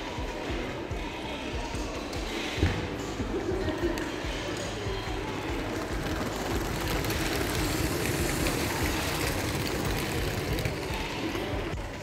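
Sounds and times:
toy train motor whirring: 5.6 - 11.5.

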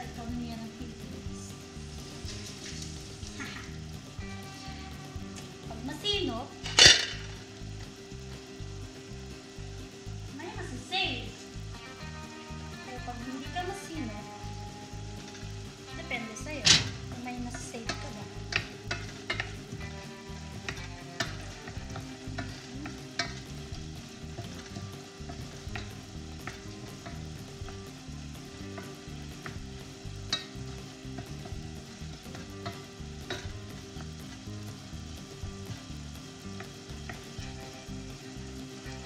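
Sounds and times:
food sizzling in a pan: 0.0 - 39.0
utensil knocking against pan: 17.6 - 19.6.

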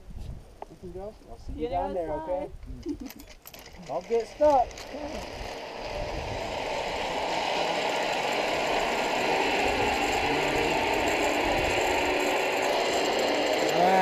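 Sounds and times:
zipline trolley whir on cable: 2.8 - 14.0.

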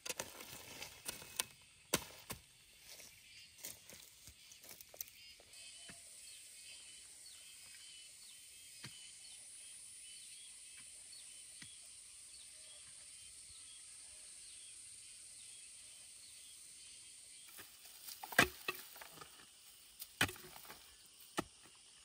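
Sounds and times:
hoe striking loose soil: 0.0 - 2.6, 17.5 - 22.0
insect chirps: 0.0 - 22.0
insects hissing: 0.4 - 22.0.

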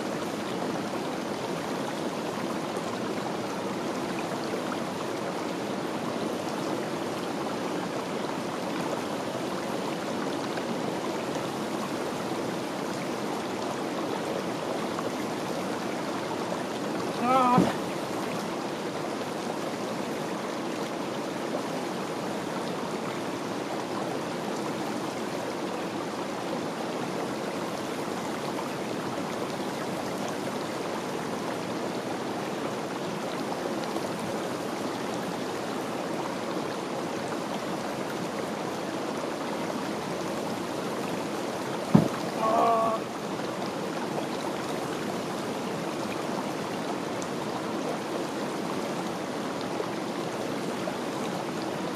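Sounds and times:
stream rushing: 0.0 - 51.9
person crying out: 17.2 - 17.8, 42.3 - 43.1
sharp knock: 17.6 - 17.8, 41.9 - 42.2.

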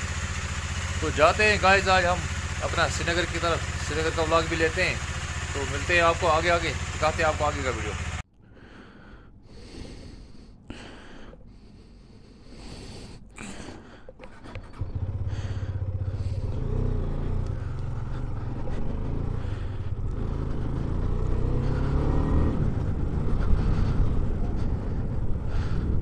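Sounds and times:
motorcycle engine accelerating: 0.0 - 8.2, 13.4 - 26.0.

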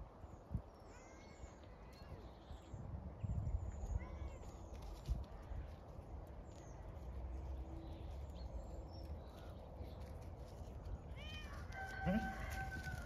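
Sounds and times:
faint bird chirps: 0.3 - 4.9
animal call: 11.2 - 13.0.

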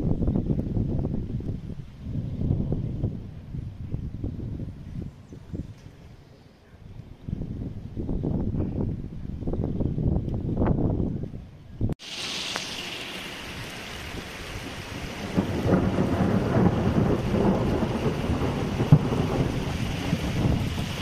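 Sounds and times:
thunder rumbling: 0.0 - 5.2, 13.0 - 21.0
heavy rain hissing: 12.0 - 21.0
sharp thunder crack: 15.0 - 21.0.

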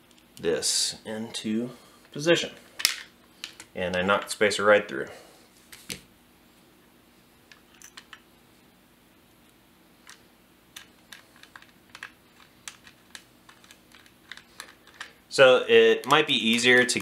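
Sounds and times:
small plastic clicks: 10.8 - 15.1.

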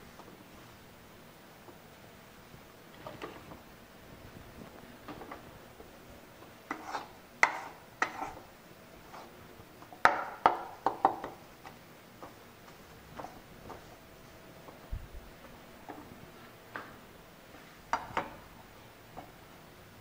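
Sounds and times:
metal spatula scraping pan: 6.7 - 8.4.

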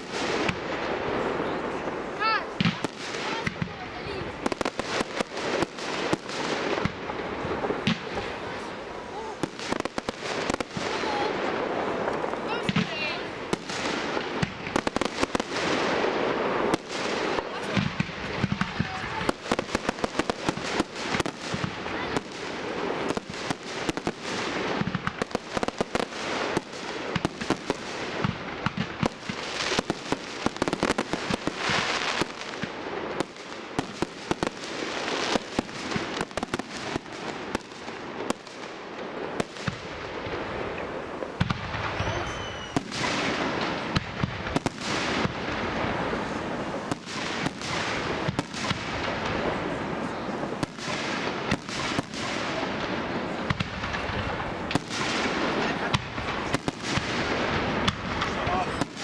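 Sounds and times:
fireworks bangs and crackles: 0.0 - 59.0
firework whistle: 41.8 - 43.2.

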